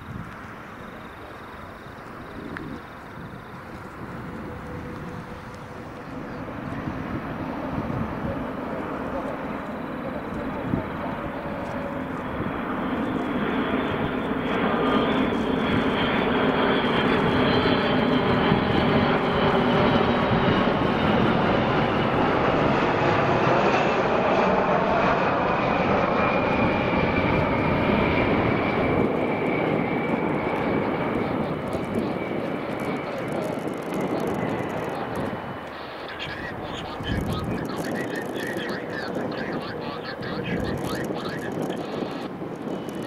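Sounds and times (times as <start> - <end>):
jet engines flying past: 0.0 - 43.0
jet whine falling in pitch: 0.0 - 43.0.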